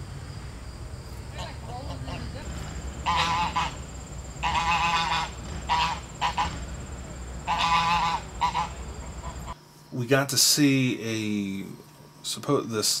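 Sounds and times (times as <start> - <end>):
geese honking: 1.2 - 9.6.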